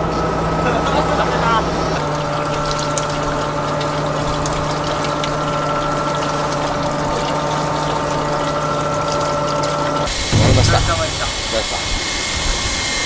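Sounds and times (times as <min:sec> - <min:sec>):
water noise: 0:02.1 - 0:12.1.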